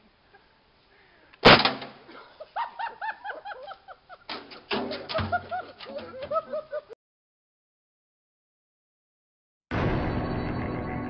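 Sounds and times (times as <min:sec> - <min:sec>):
knocks and thumps: 0:04.3 - 0:06.4.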